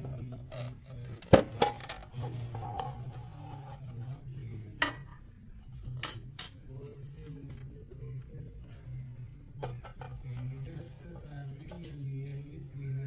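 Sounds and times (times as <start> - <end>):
tin scraping and rubbing: 2.0 - 4.3.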